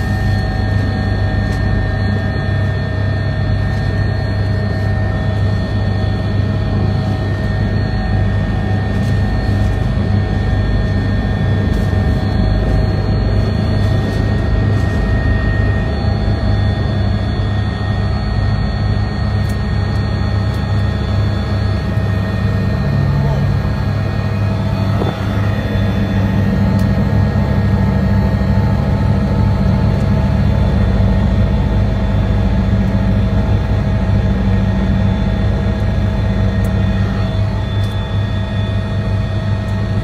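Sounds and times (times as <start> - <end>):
helicopter cabin drone: 0.0 - 40.0
steady whining tones: 0.0 - 40.0.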